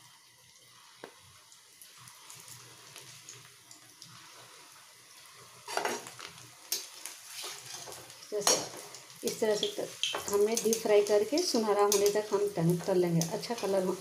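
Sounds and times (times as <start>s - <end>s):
food deep-frying in oil: 0.0s - 14.0s
metal spoon scraping a pan: 5.6s - 10.8s.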